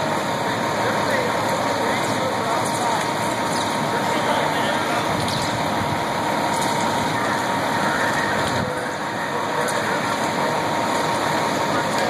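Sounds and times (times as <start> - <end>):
diesel engine running: 0.0 - 12.0
steady whine: 0.0 - 12.0.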